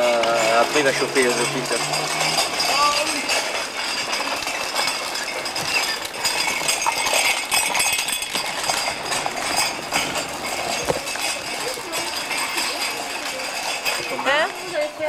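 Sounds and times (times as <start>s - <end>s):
plastic toy wheels rattling on asphalt: 0.0s - 15.0s
distant children's voices: 10.8s - 13.8s.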